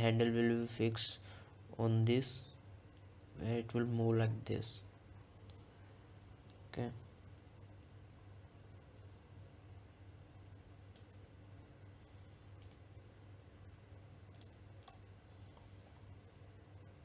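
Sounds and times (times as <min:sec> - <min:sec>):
low steady hum: 0:00.0 - 0:17.0
computer mouse clicking: 0:10.9 - 0:11.2, 0:12.5 - 0:12.9, 0:14.3 - 0:15.1.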